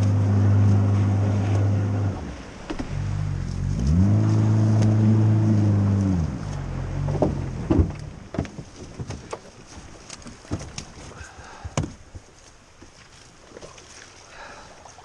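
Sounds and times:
outboard motor running: 0:00.0 - 0:09.6
knocks and clunks in boat: 0:00.0 - 0:14.2.

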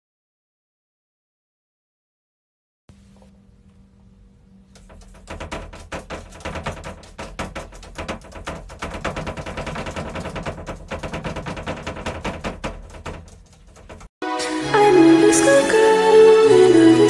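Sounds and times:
cat paws tapping on glass: 0:04.7 - 0:14.1.

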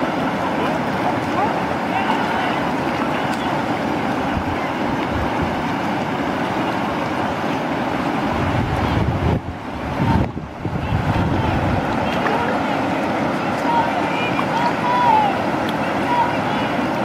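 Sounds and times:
river rapids rushing: 0:00.0 - 0:17.0
wind buffeting microphone: 0:08.2 - 0:13.4.

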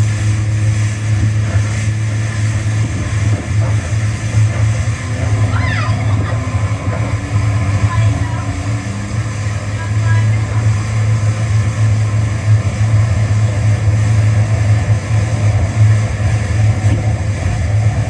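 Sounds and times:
jet ski engine running: 0:00.0 - 0:18.0
woman laughing: 0:05.5 - 0:06.6.

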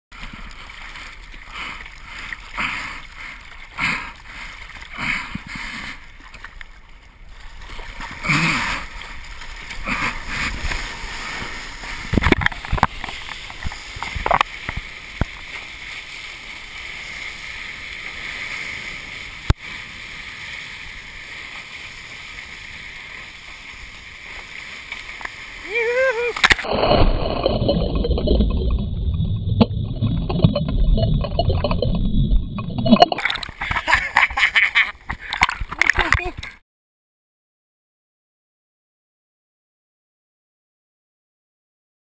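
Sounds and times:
heavier water splashes: 0:00.1 - 0:36.5
rush of water: 0:00.1 - 0:36.6
hand paddling splashes: 0:33.0 - 0:36.3.

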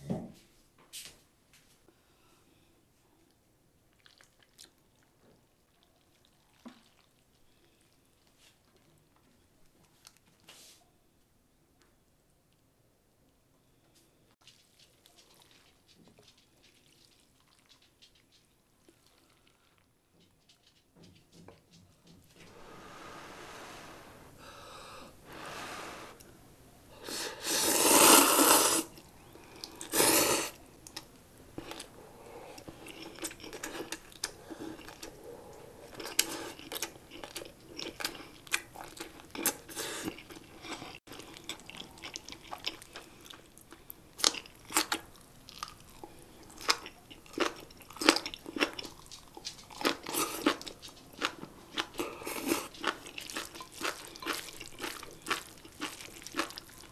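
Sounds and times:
chewing with crisp crunches: 0:03.3 - 0:10.5, 0:14.4 - 0:21.1, 0:28.9 - 0:56.9
noodle slurping: 0:27.1 - 0:29.0, 0:29.6 - 0:30.6.

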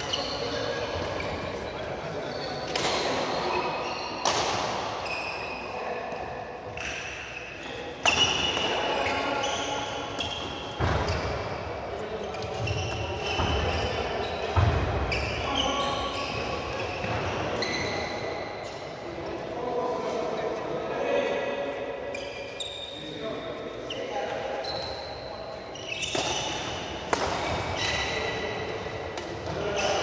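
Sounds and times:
shoes squeaking on floor: 0:00.0 - 0:04.2, 0:05.0 - 0:05.8, 0:06.7 - 0:18.9, 0:22.0 - 0:23.2, 0:23.8 - 0:30.0
racket hitting shuttlecock: 0:02.7 - 0:03.3, 0:04.2 - 0:04.9, 0:26.1 - 0:29.6.

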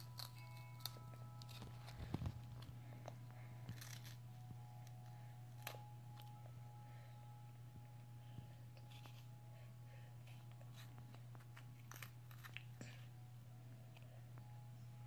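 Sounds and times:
steady low hum: 0:00.0 - 0:15.0
baby chewing crunchy wafer: 0:10.2 - 0:13.1.

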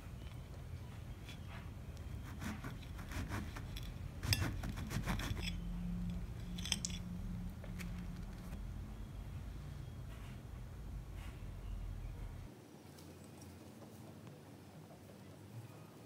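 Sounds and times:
knife sawing through pastry: 0:02.1 - 0:05.6
cutlery scraping on plate: 0:02.4 - 0:06.9.

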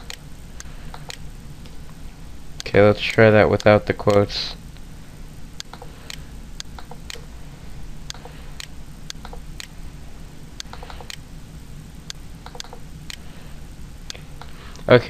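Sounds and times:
computer hum: 0:00.0 - 0:15.0
mouse and keyboard clicks: 0:00.9 - 0:01.2, 0:10.6 - 0:11.2, 0:12.4 - 0:13.2.

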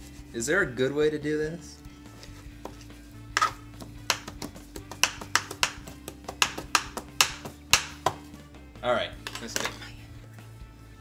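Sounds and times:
background music: 0:00.0 - 0:11.0
knife chopping on cutting board: 0:02.6 - 0:08.3.

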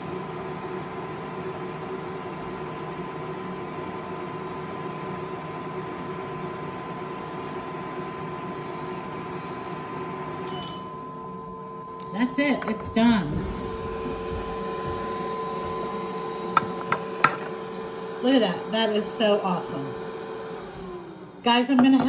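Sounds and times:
laser engraver machine hiss: 0:00.0 - 0:10.1.

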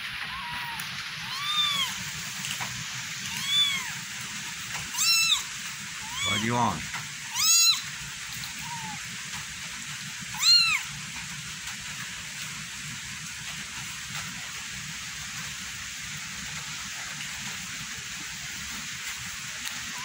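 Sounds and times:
rain hissing: 0:00.0 - 0:20.0
kitten meowing: 0:00.2 - 0:02.0, 0:03.2 - 0:04.0, 0:04.9 - 0:07.9, 0:08.5 - 0:09.0, 0:10.3 - 0:10.9.

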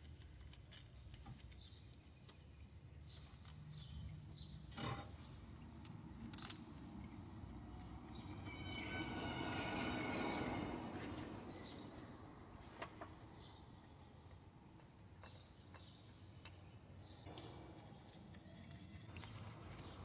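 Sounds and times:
engine-like hum: 0:04.7 - 0:14.0.

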